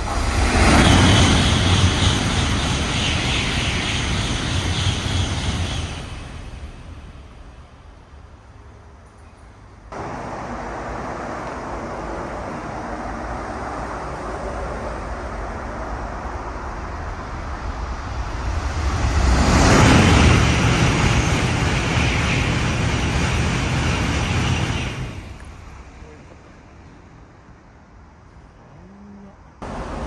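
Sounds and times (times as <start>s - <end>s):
bullet train passing at high speed: 0.0s - 28.6s, 29.6s - 30.0s.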